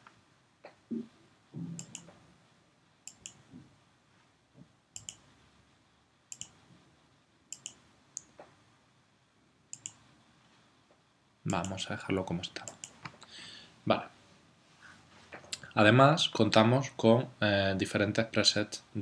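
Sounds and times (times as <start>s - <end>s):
computer mouse clicks: 1.8s - 2.2s, 3.0s - 3.4s, 5.0s - 5.3s, 6.3s - 6.6s, 7.5s - 8.5s, 9.7s - 10.0s, 11.5s - 11.8s, 12.6s - 13.2s.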